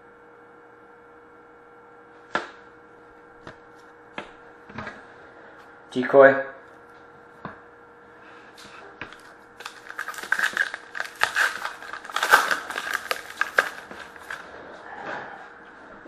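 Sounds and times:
plastic wrapper crinkling: 0:09.1 - 0:14.5.

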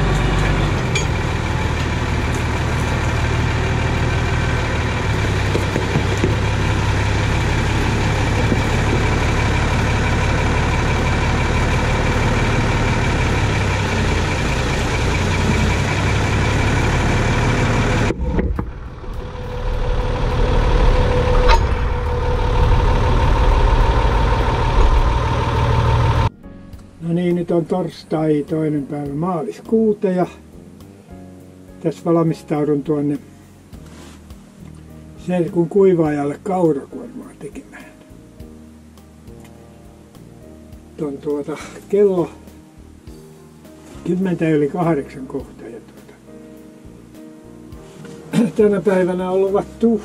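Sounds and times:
tractor diesel engine running: 0:00.0 - 0:26.4.

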